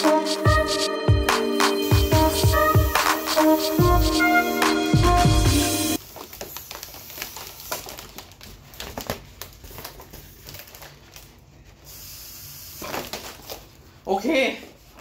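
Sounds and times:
foil balloons crinkling: 6.0s - 12.0s, 12.7s - 15.0s.

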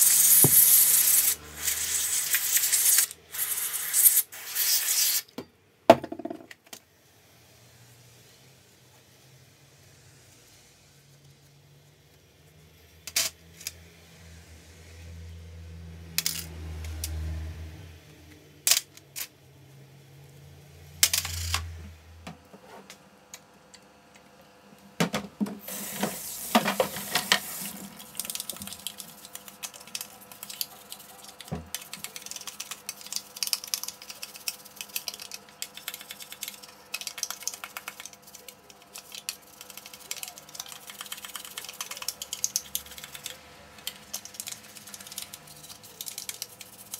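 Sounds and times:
water running over plastic: 25.6s - 33.1s
brush scrubbing wet plastic: 25.6s - 35.2s.

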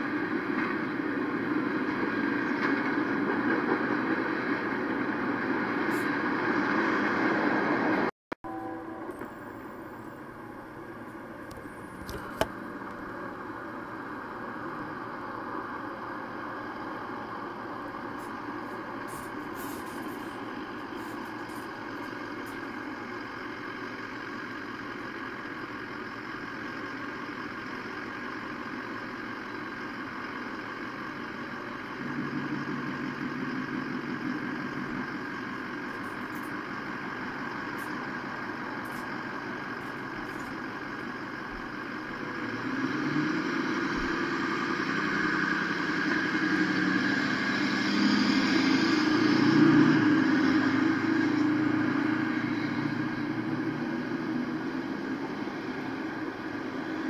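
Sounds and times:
vehicle engines idling: 0.0s - 57.0s
deeper engine note: 3.4s - 28.7s.

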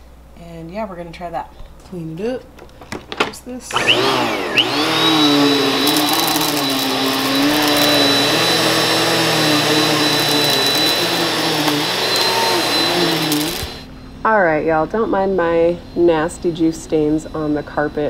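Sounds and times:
vacuum cleaner running: 3.6s - 13.9s.

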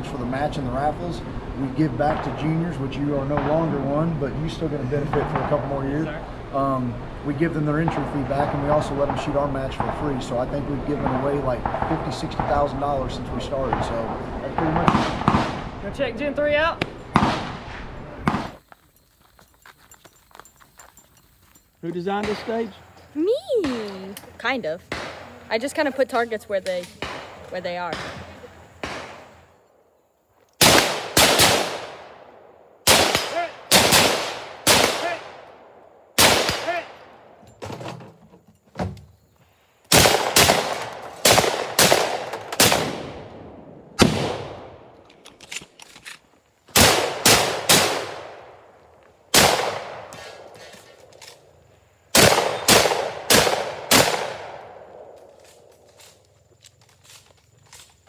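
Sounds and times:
gunshots with echo: 10.9s - 15.8s, 30.6s - 35.4s, 36.2s - 37.1s, 39.9s - 43.4s, 46.8s - 48.5s, 49.3s - 50.4s, 52.1s - 54.8s.

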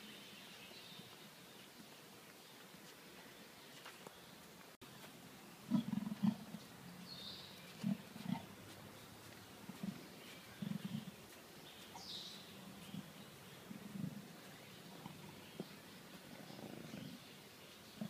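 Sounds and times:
leopard grunting: 5.7s - 6.6s, 14.9s - 17.2s.

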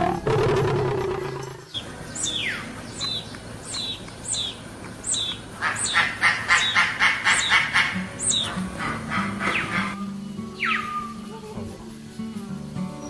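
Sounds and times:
fast pulsed bird notes: 0.0s - 11.4s
eagle calling shrill notes: 9.2s - 11.6s.

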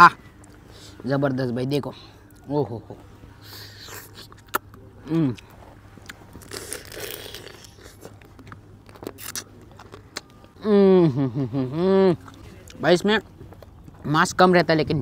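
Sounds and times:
crab shell crunching: 6.0s - 10.5s.

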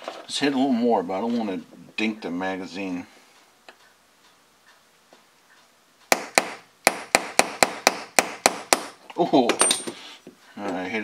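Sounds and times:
small hammer tapping: 5.5s - 9.7s.

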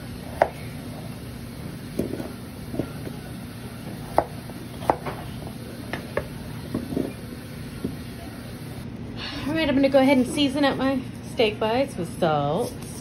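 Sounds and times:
steady low hum: 0.0s - 13.0s
knife chopping on wooden board: 0.3s - 0.7s, 3.9s - 5.3s.

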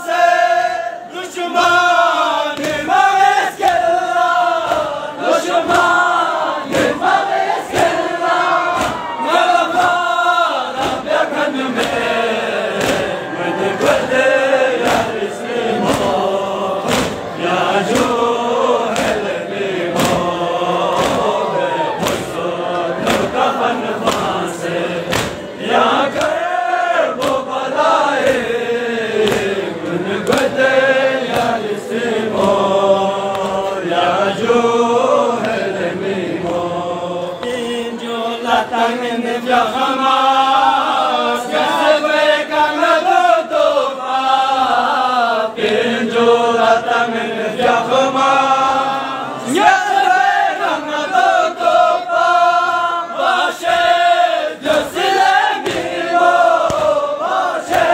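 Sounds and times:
men chanting in unison: 0.0s - 57.9s
steady beat of sharp strikes: 6.7s - 10.1s, 14.8s - 21.3s, 22.0s - 22.4s, 23.0s - 23.4s, 24.0s - 26.4s.

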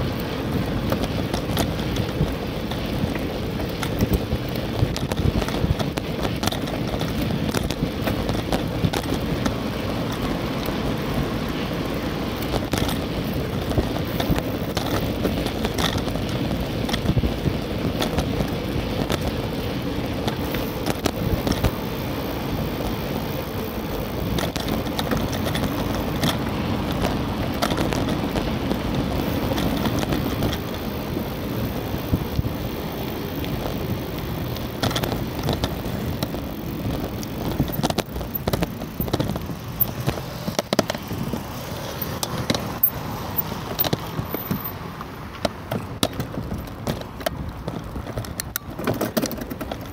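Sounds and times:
wind rush: 0.0s - 45.3s
bicycle tyre noise: 0.0s - 49.9s
small knocks and rattles: 0.9s - 10.3s, 24.2s - 31.3s, 34.4s - 49.9s.

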